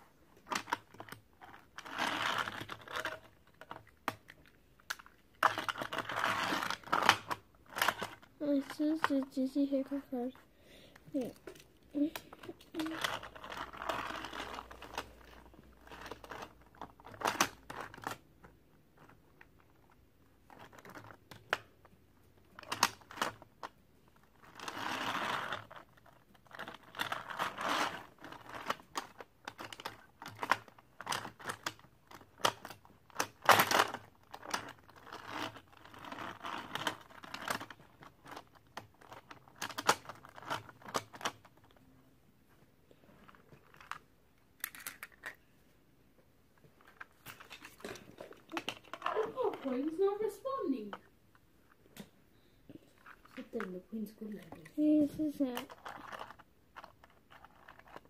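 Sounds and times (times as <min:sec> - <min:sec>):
toy cars clicking and clattering: 0:11.2 - 0:18.3, 0:22.6 - 0:41.6, 0:44.6 - 0:45.4.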